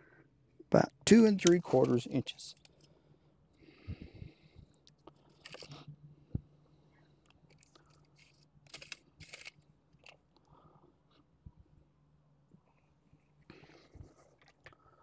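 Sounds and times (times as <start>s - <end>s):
faint low hum: 0.0s - 15.0s
tools and metal parts handled: 5.2s - 5.8s, 7.5s - 10.2s.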